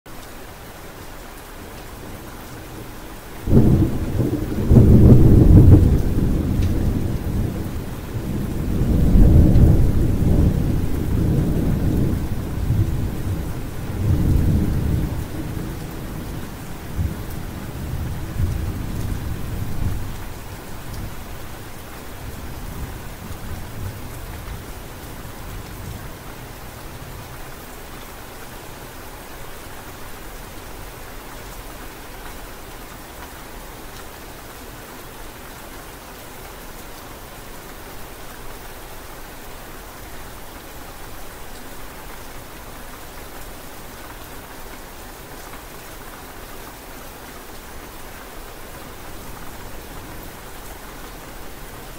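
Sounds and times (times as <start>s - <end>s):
steady rain: 0.1s - 51.9s
thunder crack and rumble: 3.5s - 20.2s.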